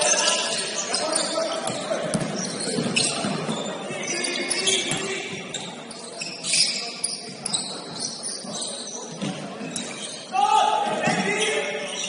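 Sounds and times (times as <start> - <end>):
shoes squeaking on hardwood: 0.0 - 10.3
general hubbub: 0.0 - 12.0.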